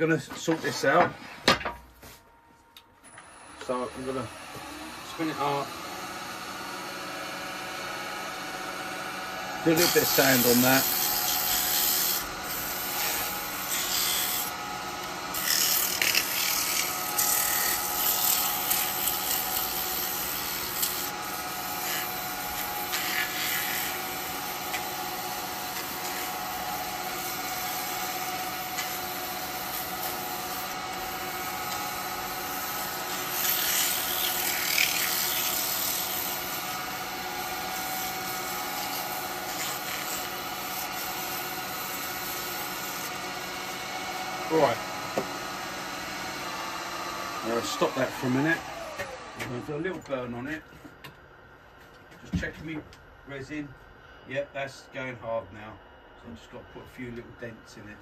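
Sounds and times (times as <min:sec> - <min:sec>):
lathe motor hum: 0:03.1 - 0:50.1
sandpaper rasping on spinning wood: 0:09.6 - 0:14.6, 0:15.3 - 0:43.2.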